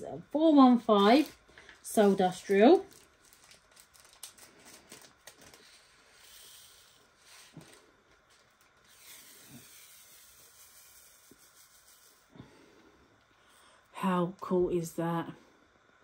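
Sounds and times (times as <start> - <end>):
plastic bag rustling: 0.9 - 9.6.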